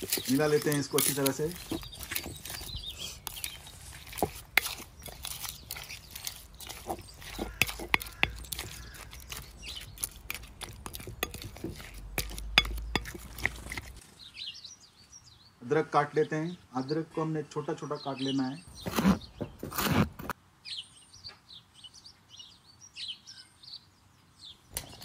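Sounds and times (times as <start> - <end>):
scraper knocking on glass bowl: 0.0 - 14.0.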